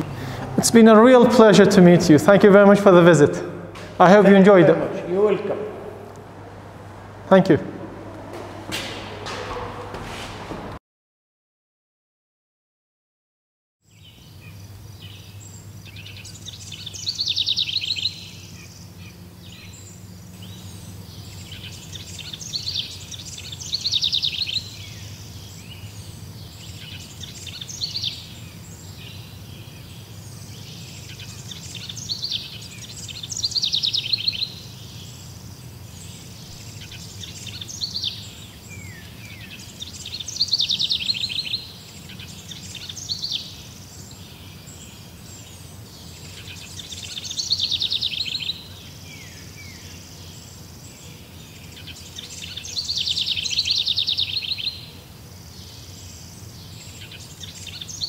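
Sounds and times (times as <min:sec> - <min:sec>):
steady low hum: 0:00.0 - 0:10.8, 0:14.0 - 0:54.1
songbird trilling: 0:13.9 - 0:58.0.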